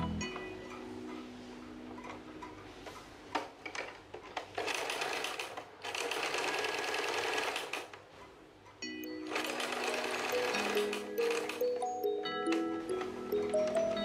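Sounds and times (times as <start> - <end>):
sewing machine stitching: 3.7 - 7.9, 9.3 - 11.6.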